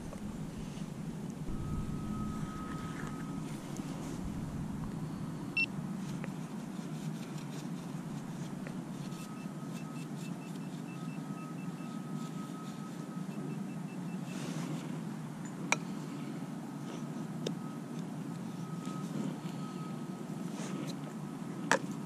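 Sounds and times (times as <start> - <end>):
steady lower tone: 0.0 - 6.8
low background rumble: 0.0 - 9.4
metal detector beeps: 1.5 - 5.7, 9.0 - 14.4.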